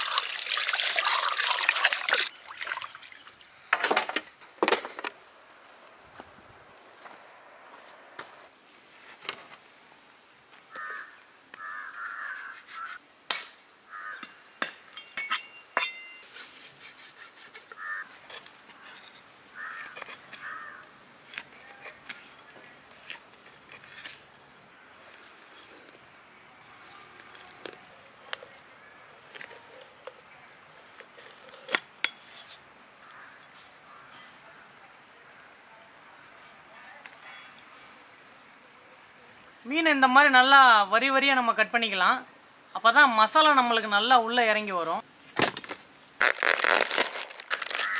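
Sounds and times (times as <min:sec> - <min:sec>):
crows cawing: 0:10.7 - 0:13.0, 0:13.9 - 0:14.4, 0:17.8 - 0:18.2, 0:19.6 - 0:20.9, 0:33.0 - 0:34.4, 0:47.6 - 0:47.9.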